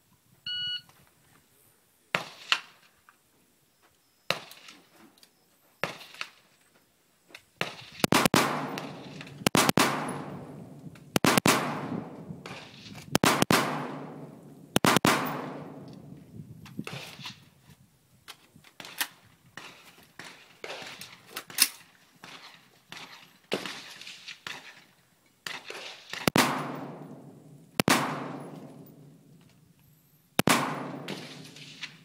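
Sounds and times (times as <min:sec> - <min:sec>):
shot timer beep: 0:00.5 - 0:00.8
rifle shots echoing: 0:08.0 - 0:16.2, 0:26.2 - 0:29.4, 0:30.4 - 0:32.0.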